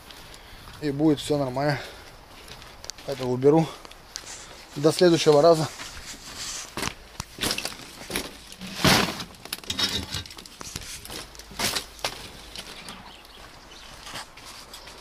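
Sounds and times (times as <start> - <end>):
paper sack rustling: 5.1 - 12.8.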